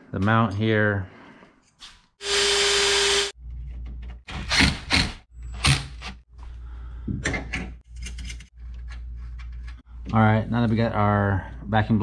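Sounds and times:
cordless drill drilling: 2.2s - 3.3s.

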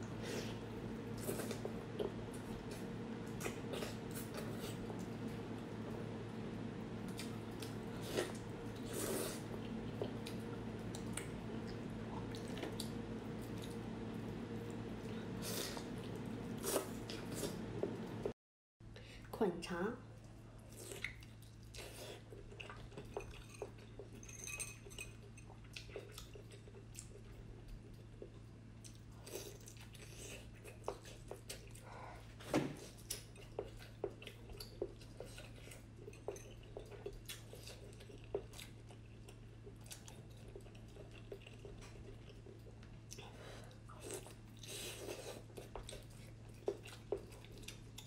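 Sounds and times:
person chewing with mouth clicks: 20.6s - 24.0s, 25.4s - 31.9s, 32.9s - 48.0s.

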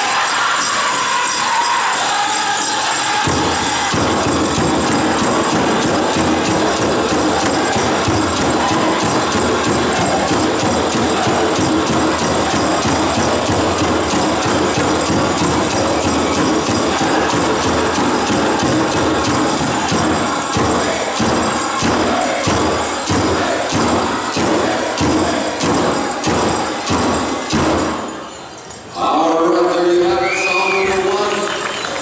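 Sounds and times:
drum group drumming: 0.0s - 28.2s
bells jingling: 0.0s - 32.0s
men singing: 4.8s - 27.0s.

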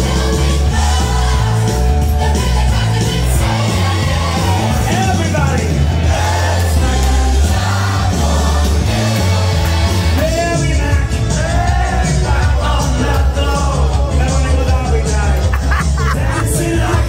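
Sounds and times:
backing track with heavy bass: 0.0s - 17.0s
person singing: 6.2s - 17.0s.

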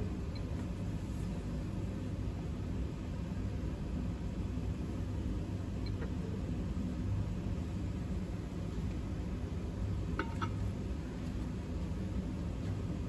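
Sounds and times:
low room rumble: 0.0s - 13.0s.

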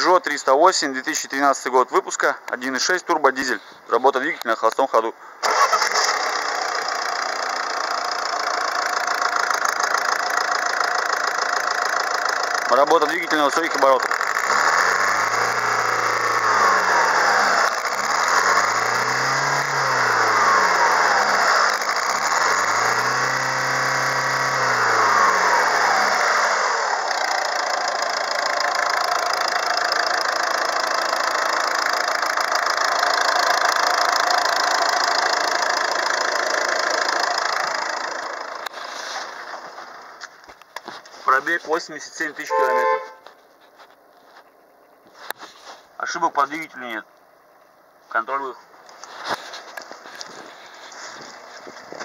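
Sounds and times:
diesel engine revving: 5.4s - 40.0s.

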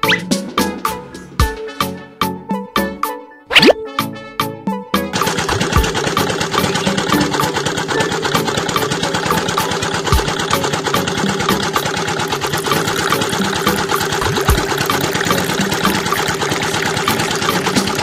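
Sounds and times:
small motor running: 5.3s - 18.0s
fast even ticking: 11.4s - 18.0s.

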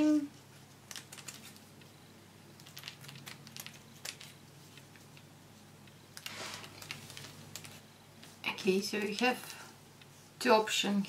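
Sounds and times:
paper rustle: 6.2s - 8.4s.

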